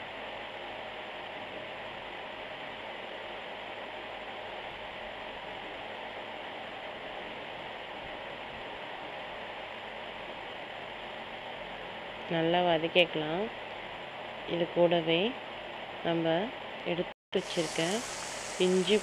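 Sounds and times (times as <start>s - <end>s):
vegetables sizzling in oil: 17.4s - 19.0s.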